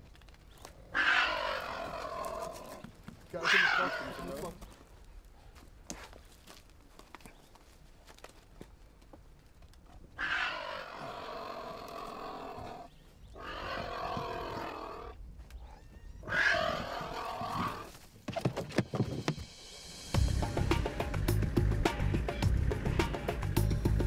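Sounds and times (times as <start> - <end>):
cheetah cub growling and hissing: 0.8 - 2.8, 3.4 - 4.6, 10.2 - 15.2, 16.2 - 17.9.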